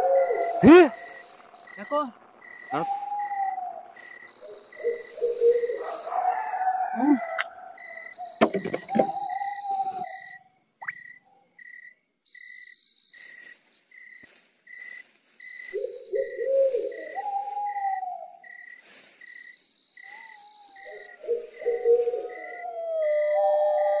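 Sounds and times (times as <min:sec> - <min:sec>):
low wavering hoot-like calls: 0:00.0 - 0:11.1, 0:15.7 - 0:18.7, 0:20.0 - 0:24.0
insect high trill: 0:00.0 - 0:24.0
short insect chirp: 0:00.4 - 0:06.6, 0:07.4 - 0:22.6.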